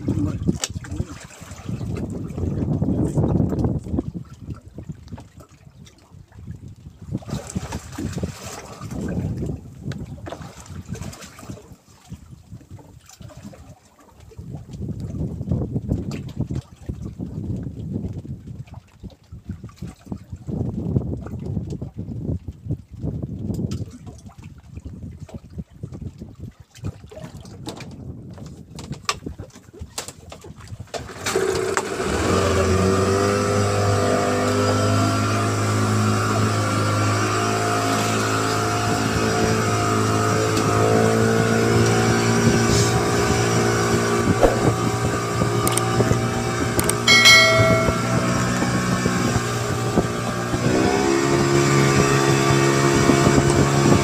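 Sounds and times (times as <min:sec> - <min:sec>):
boat engine running: 0:31.4 - 0:54.0.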